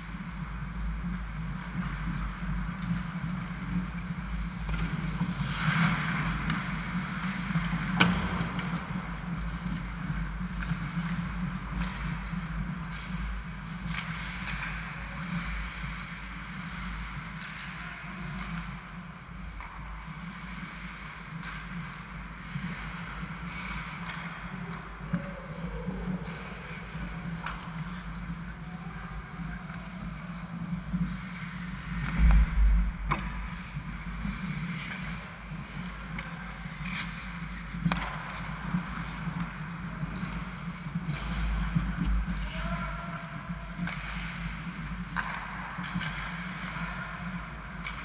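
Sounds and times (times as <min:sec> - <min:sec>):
skate blades scraping ice: 0:00.0 - 0:25.2, 0:26.0 - 0:42.5
hockey sticks and puck clacking: 0:00.0 - 0:48.0
low hum: 0:31.7 - 0:34.4
heavy thump: 0:32.1 - 0:33.5.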